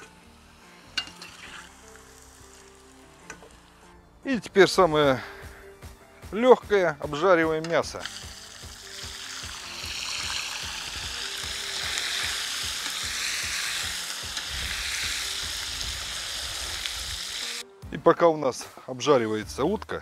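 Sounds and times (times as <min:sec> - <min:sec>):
meat sizzling in hot oil: 0:00.0 - 0:03.8, 0:07.9 - 0:17.6.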